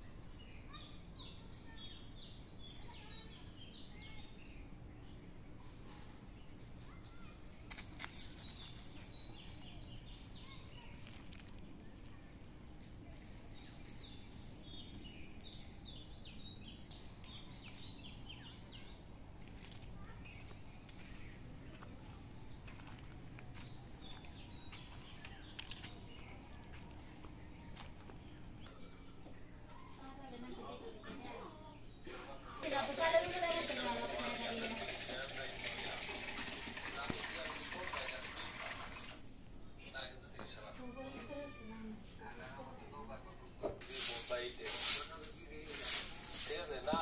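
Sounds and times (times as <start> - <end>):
steady background hum: 0.0 - 33.7
small birds chirping: 0.0 - 47.0.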